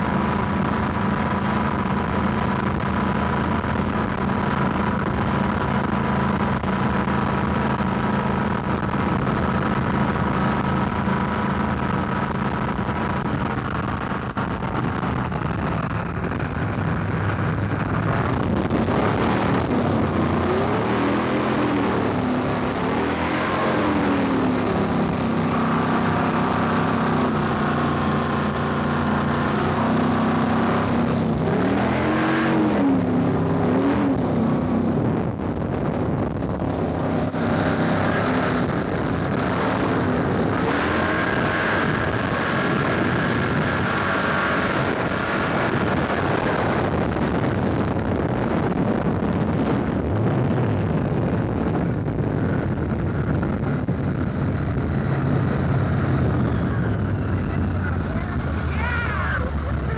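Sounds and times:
boat engine running: 0.0s - 59.9s
rush of wind and water: 0.0s - 59.9s.

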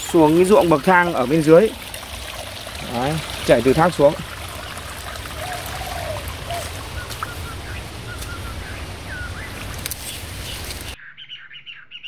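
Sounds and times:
stream trickling over rocks: 0.0s - 11.0s
faint bird chirps: 5.4s - 12.0s.

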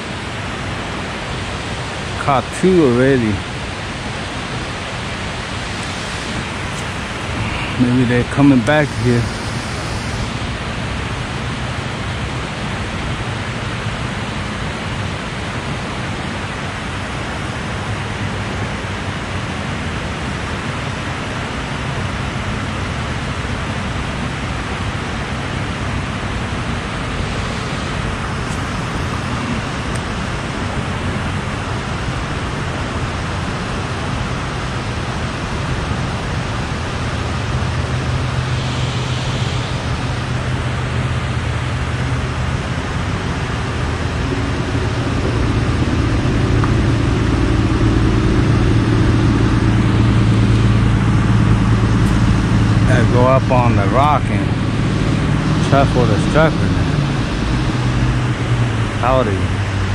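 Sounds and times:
water rushing: 0.0s - 12.7s, 26.0s - 59.9s
low rumble: 3.9s - 11.8s, 36.4s - 59.9s.

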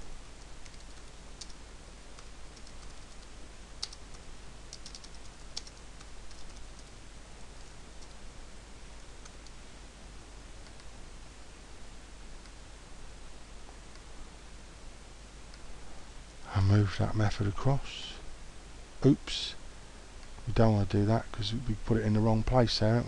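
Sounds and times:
faint steady hiss: 0.0s - 23.0s
computer keyboard clicks: 0.4s - 1.6s, 2.2s - 6.9s.

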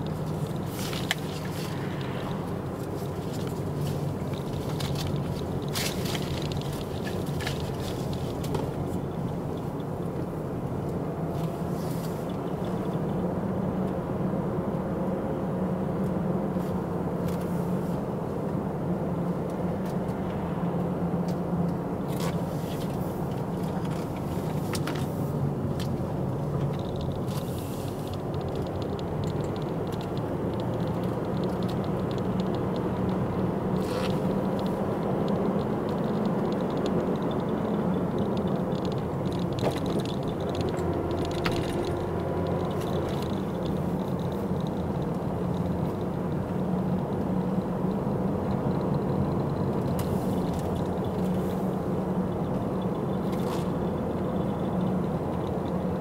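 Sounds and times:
car engine hum: 0.0s - 56.0s
road and tyre noise: 0.0s - 56.0s
car clicks and knocks: 22.1s - 47.3s.

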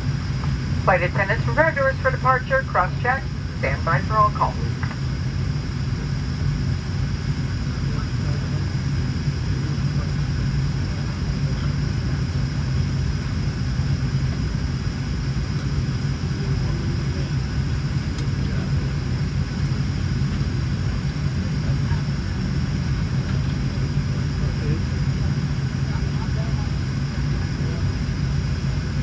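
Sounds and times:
faint high whine: 0.0s - 29.0s
low airplane cabin drone: 0.0s - 29.0s.

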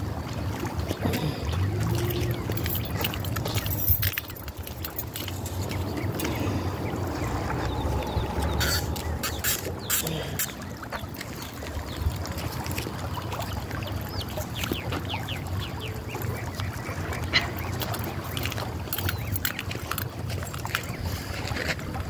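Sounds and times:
creek flowing: 0.0s - 22.0s
wind buffeting microphone: 1.5s - 9.9s
high chirps: 7.2s - 10.6s.

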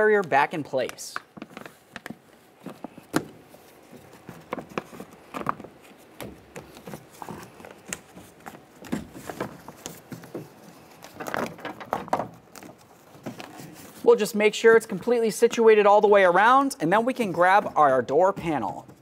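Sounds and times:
plastic sheet crinkling: 0.0s - 15.1s.

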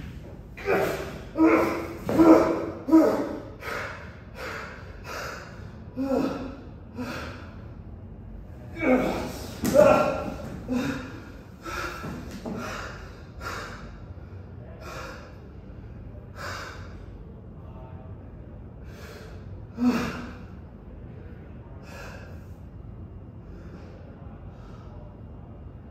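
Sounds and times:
person breathing hard: 0.6s - 7.8s, 8.8s - 17.2s, 18.8s - 20.4s, 21.8s - 22.6s.

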